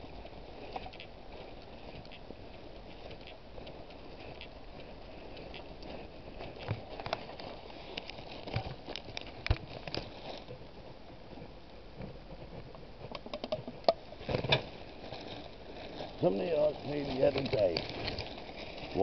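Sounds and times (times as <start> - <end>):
faint outdoor background: 0.0 - 19.0
camera handling clicks and rustles: 13.0 - 14.7.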